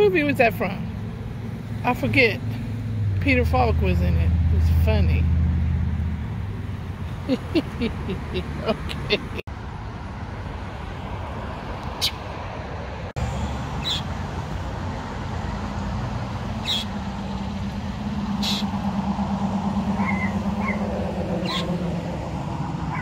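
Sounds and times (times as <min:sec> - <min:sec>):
distant traffic hum: 0:00.0 - 0:23.0
birds chirping: 0:13.2 - 0:15.6, 0:16.3 - 0:18.9, 0:19.8 - 0:21.8
low buzzing drone: 0:13.2 - 0:23.0.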